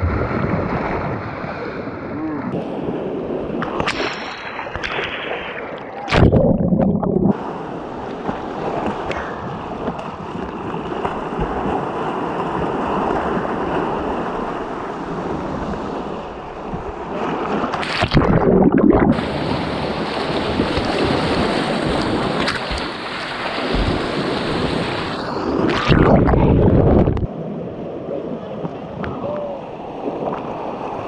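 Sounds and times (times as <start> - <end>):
loud water splashes: 3.6 - 9.1, 17.2 - 27.1.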